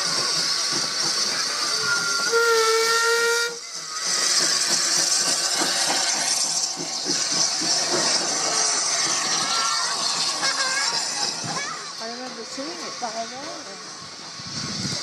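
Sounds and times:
steady hiss of steam: 0.0 - 15.0
steam locomotive chuffing: 0.0 - 15.0
steam whistle: 1.7 - 3.6.

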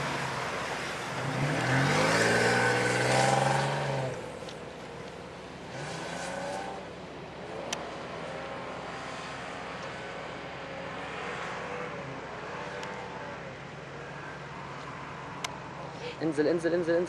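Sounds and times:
distant suv engine under load: 0.0 - 17.0.

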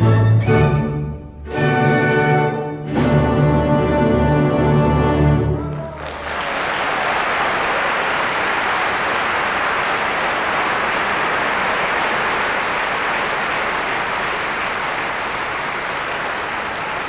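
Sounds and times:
audience applauding: 5.6 - 17.0.

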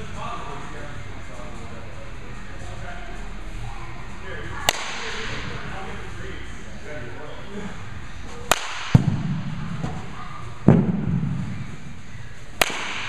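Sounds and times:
bat cracking balls: 4.6 - 5.4, 8.4 - 11.7, 12.5 - 13.0
dull thuds with echo: 8.6 - 11.8.

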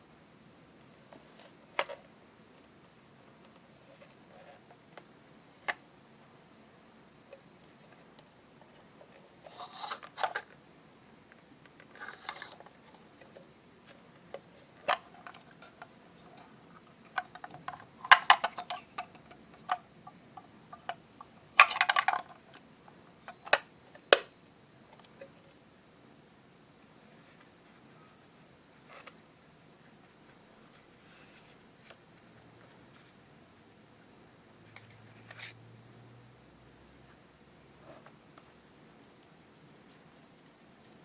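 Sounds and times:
plastic rubbing and scraping: 8.7 - 10.6, 11.8 - 13.4.

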